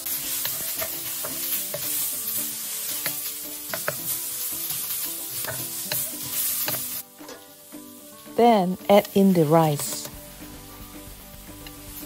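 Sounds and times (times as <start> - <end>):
food sizzling in hot oil: 0.0 - 12.0
spatula knocking and scraping pan: 0.2 - 7.5.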